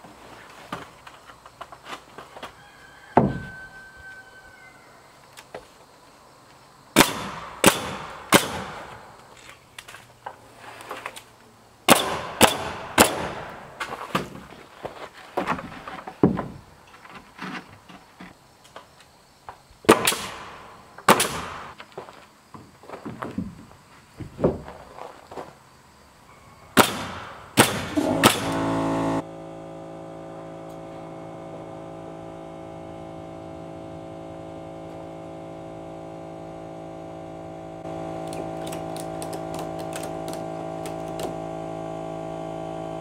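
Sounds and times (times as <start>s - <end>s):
nail gun shots: 7.0s - 9.0s, 11.9s - 13.6s, 19.9s - 21.7s, 26.8s - 28.6s.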